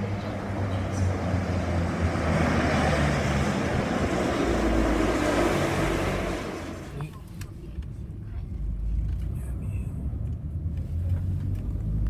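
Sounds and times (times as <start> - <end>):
train rushing past: 0.0 - 6.9.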